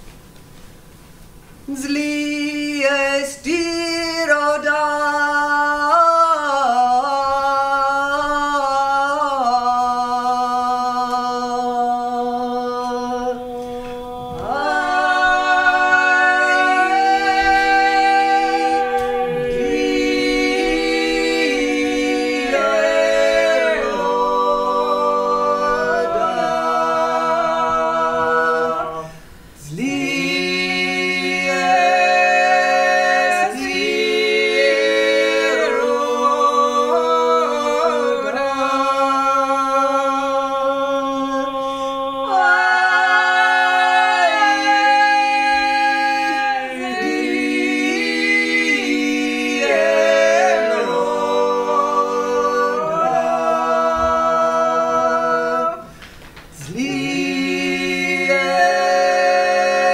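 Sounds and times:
voices singing in harmony: 0:01.7 - 0:59.9
low held vocal note: 0:09.8 - 0:31.1.

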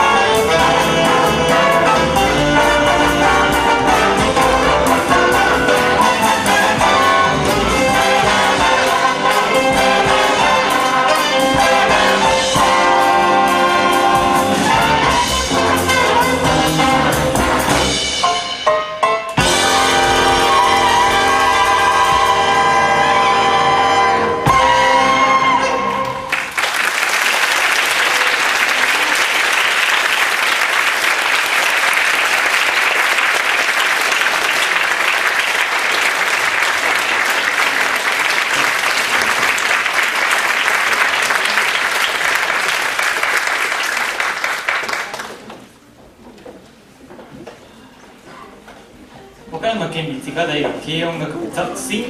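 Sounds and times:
big jazz band playing: 0:00.0 - 0:46.0
audience applauding: 0:26.0 - 0:45.8.

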